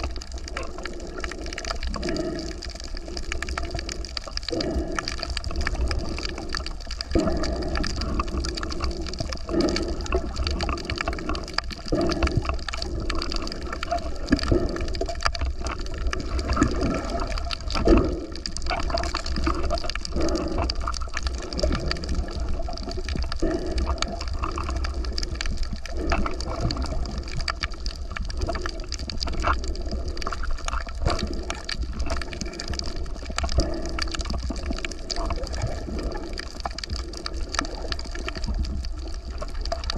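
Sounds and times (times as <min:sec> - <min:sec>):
water sloshing and gurgling: 0:00.0 - 0:39.9.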